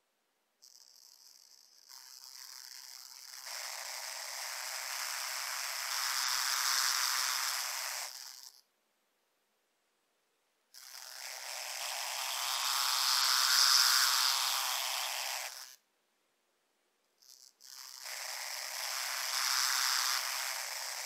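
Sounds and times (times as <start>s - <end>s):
tiny motor and gears whirring: 0.6s - 8.6s, 10.8s - 15.8s, 17.2s - 21.0s.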